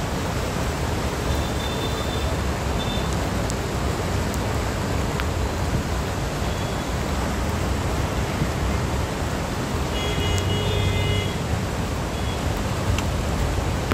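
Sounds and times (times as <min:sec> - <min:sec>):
floodwater rushing: 0:00.0 - 0:13.9
heavy rain: 0:00.0 - 0:13.9.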